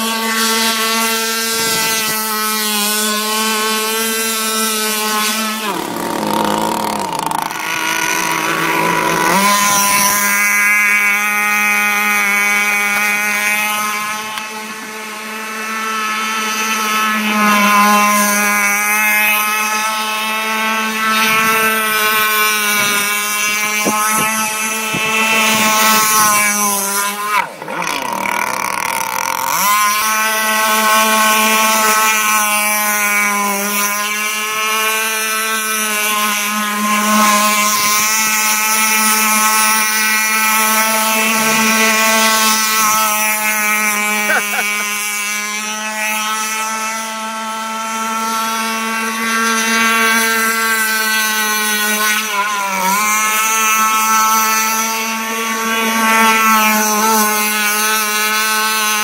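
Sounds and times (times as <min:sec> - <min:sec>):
two-stroke boat engine revving: 0:00.0 - 0:59.0.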